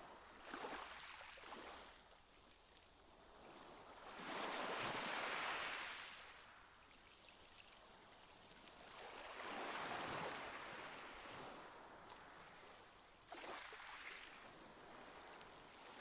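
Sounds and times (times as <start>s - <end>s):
water lapping and sloshing: 0.3s - 2.1s, 7.0s - 16.0s.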